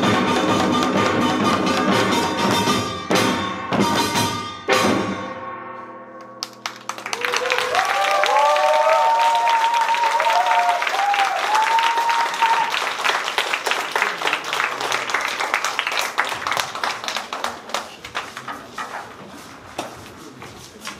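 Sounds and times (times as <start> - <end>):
drums playing fast rhythm: 0.0 - 5.4
audience applause and cheering: 6.4 - 18.8.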